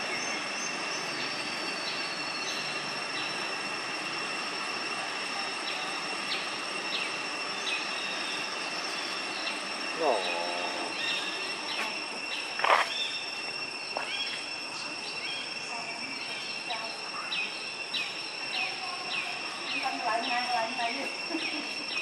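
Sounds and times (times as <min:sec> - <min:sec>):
insects droning: 0:00.0 - 0:22.0
high falling bird chirps: 0:05.6 - 0:22.0.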